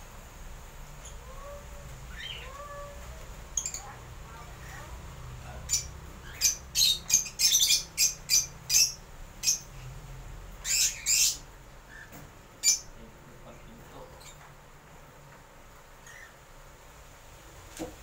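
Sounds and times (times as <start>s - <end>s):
cockatiels calling: 1.0s - 3.0s, 5.6s - 9.7s, 10.6s - 12.9s, 16.0s - 16.4s.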